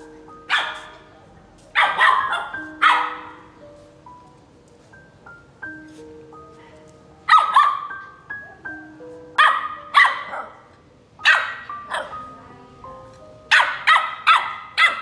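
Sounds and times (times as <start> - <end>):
soft background music: 0.0 - 15.0
puppy barking: 0.5 - 1.0, 1.7 - 3.5, 7.3 - 8.0, 9.4 - 12.3, 13.5 - 15.0.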